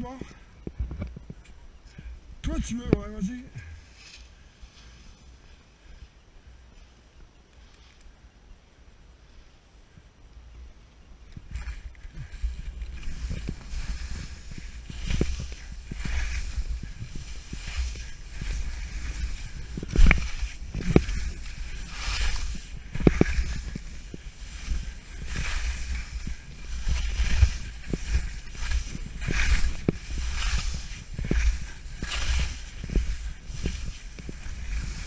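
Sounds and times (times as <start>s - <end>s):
skis swishing through snow: 3.0s - 6.1s, 11.4s - 35.0s
skis knocking on bumps: 11.5s - 35.0s.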